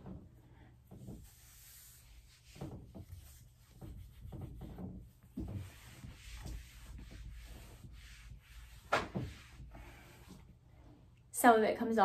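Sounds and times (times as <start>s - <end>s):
eraser rubbing whiteboard: 1.0s - 10.4s.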